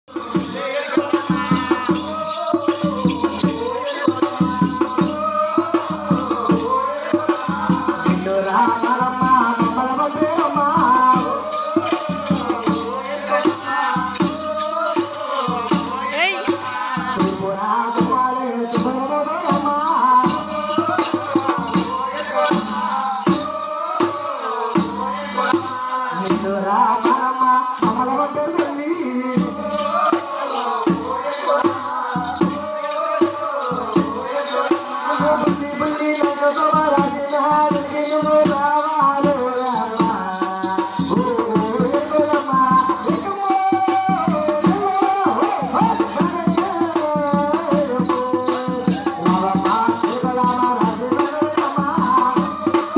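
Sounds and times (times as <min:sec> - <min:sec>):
folk singing: 0:00.0 - 0:52.9
rattling clicking stick percussion: 0:00.2 - 0:27.2.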